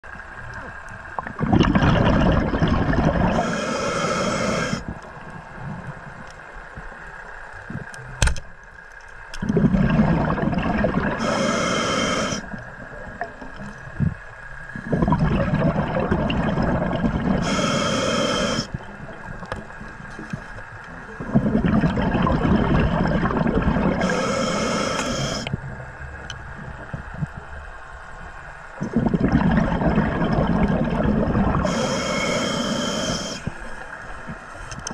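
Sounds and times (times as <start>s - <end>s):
scuba regulator breathing bubbles: 1.3s - 5.0s, 9.4s - 12.6s, 14.8s - 19.5s, 21.1s - 25.5s, 28.8s - 34.9s.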